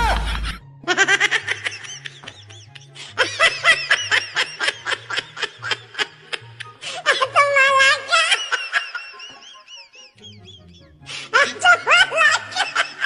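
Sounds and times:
background music with bass line: 0:00.0 - 0:03.1.

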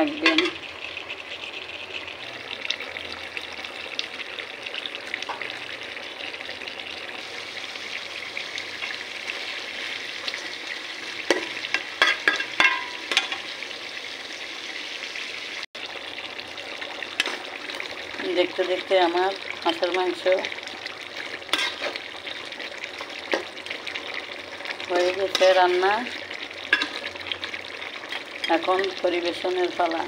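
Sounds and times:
curry sizzling in a pot: 0:00.0 - 0:30.0
metal spatula scraping a pot: 0:11.0 - 0:13.5, 0:21.2 - 0:22.2, 0:24.9 - 0:27.3.

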